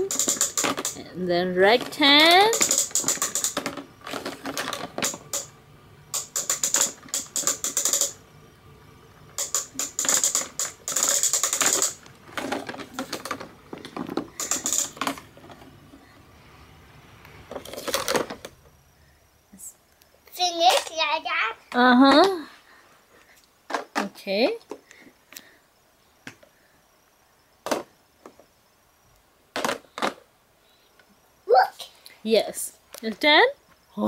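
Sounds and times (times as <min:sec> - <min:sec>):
plastic toy lever clicking and rattling: 0:00.0 - 0:01.0, 0:01.7 - 0:05.5, 0:06.2 - 0:08.2, 0:09.4 - 0:15.6.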